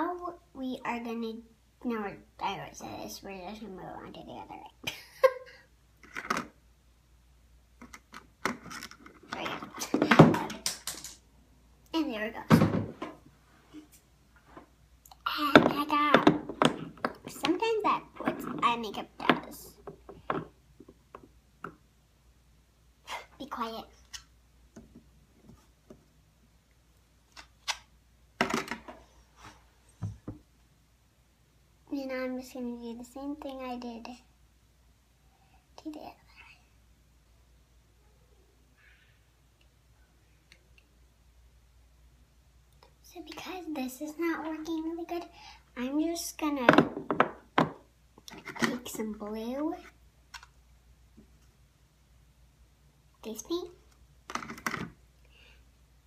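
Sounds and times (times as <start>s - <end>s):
objects clicking and tapping: 10.0s - 11.2s.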